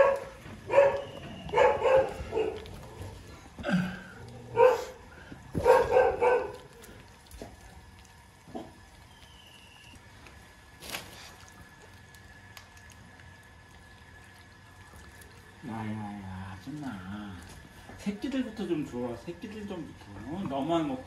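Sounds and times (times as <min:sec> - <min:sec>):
dog barking: 0:00.0 - 0:02.7, 0:04.5 - 0:05.0, 0:05.6 - 0:06.8.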